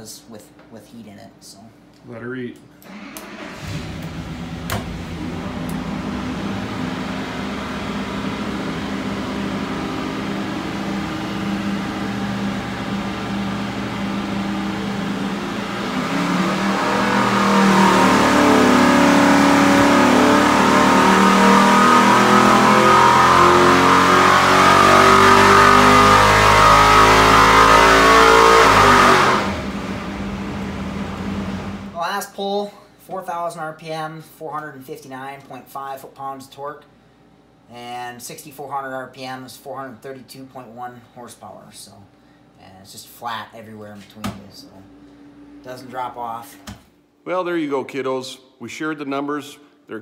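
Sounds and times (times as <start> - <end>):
race engine revving: 2.9 - 32.0.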